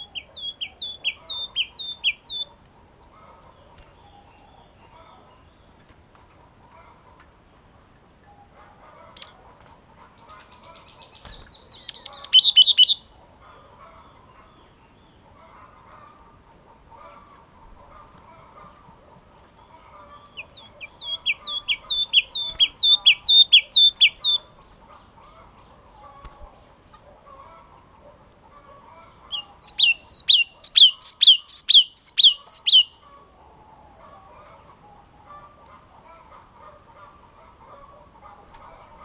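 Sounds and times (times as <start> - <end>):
bird whistling repeated notes: 9.2 - 9.4, 11.7 - 13.0, 20.4 - 24.4, 29.3 - 32.9.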